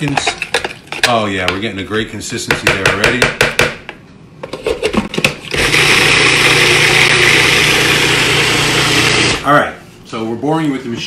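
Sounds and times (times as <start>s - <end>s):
food processor motor hum: 5.5s - 9.4s.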